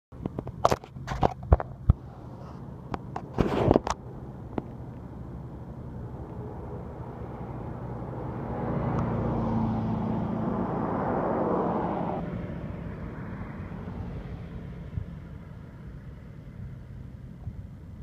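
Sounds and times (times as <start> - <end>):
vehicle passing: 3.5 - 16.5.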